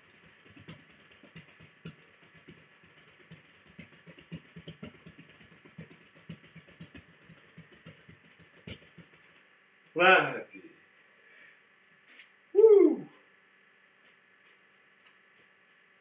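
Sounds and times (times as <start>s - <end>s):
feet stamping on a floor: 0.0s - 9.4s.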